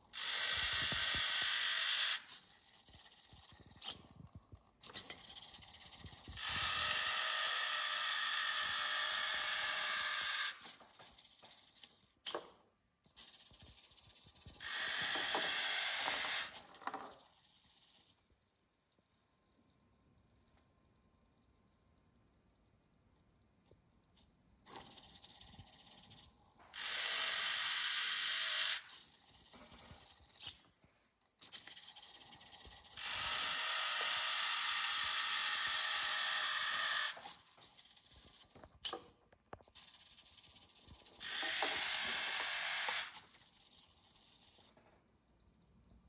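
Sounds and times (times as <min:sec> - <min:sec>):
servo motors whirring: 0:00.2 - 0:04.1, 0:13.3 - 0:18.2, 0:31.5 - 0:39.0, 0:39.7 - 0:44.7.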